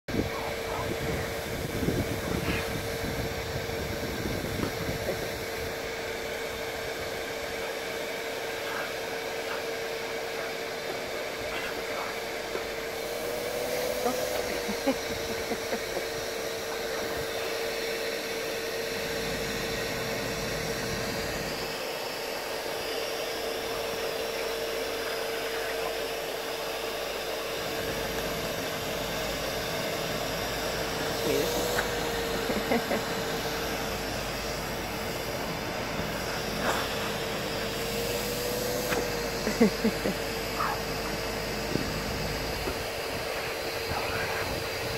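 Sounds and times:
vacuum cleaner whining: 0:00.1 - 0:44.9.

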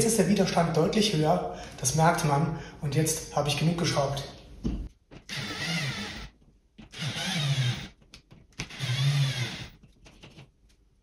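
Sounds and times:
cordless screwdriver motor whirring: 0:05.3 - 0:06.3, 0:06.9 - 0:07.9, 0:08.6 - 0:09.7.

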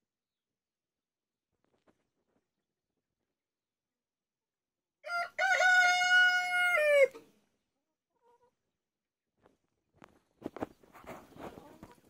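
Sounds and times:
rooster crowing: 0:05.0 - 0:07.2.

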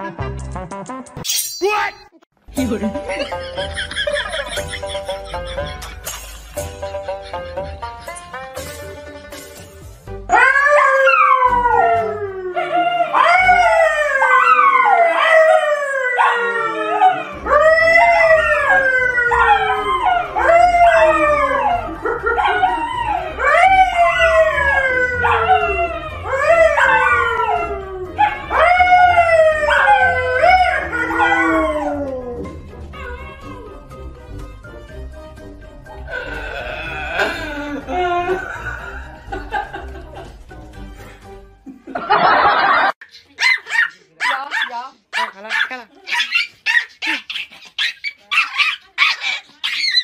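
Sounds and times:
dogs howling: 0:10.3 - 0:33.9
man howling: 0:36.1 - 0:38.6.

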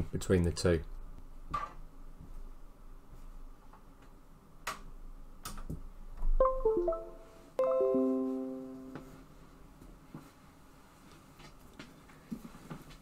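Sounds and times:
computer system chimes: 0:06.4 - 0:09.0.

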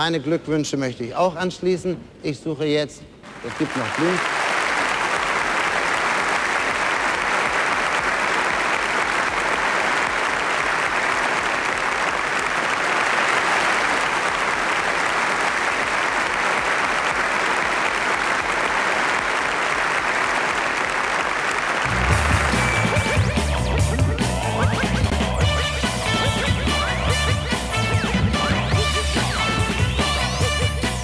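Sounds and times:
audience applauding: 0:03.3 - 0:30.6
music: 0:21.8 - 0:31.0.

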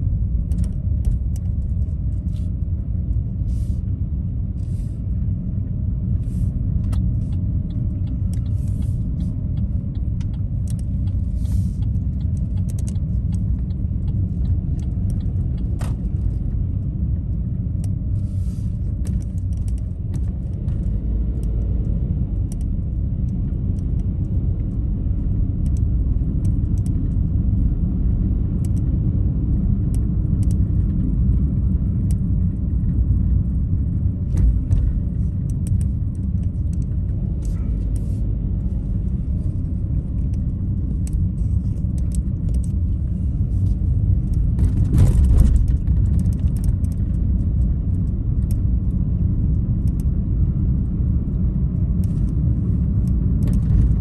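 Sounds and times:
car engine and tyres rumbling: 0:00.0 - 0:54.0.

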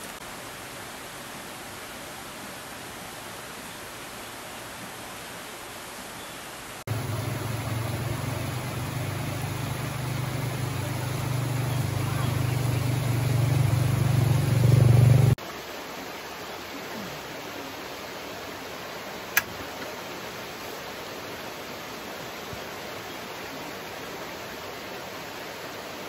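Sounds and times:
rocky stream hissing: 0:00.0 - 0:26.0
loud low rumbling: 0:06.9 - 0:15.4.

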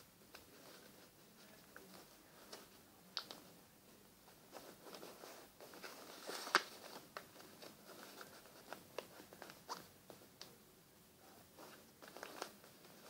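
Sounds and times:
paper rustling and crinkling: 0:04.3 - 0:10.2, 0:11.5 - 0:13.0.

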